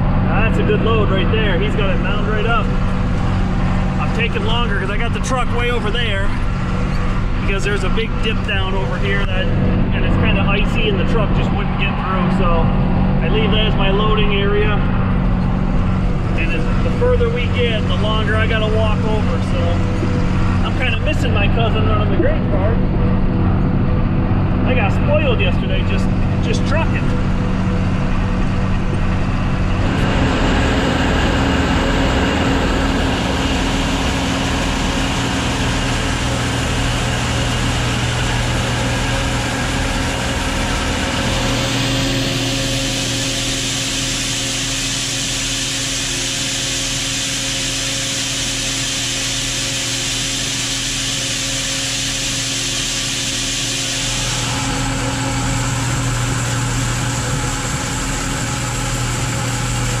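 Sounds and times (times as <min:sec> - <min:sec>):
tractor engine running: 0:00.0 - 1:00.0
corn pouring hiss: 0:41.4 - 0:55.6.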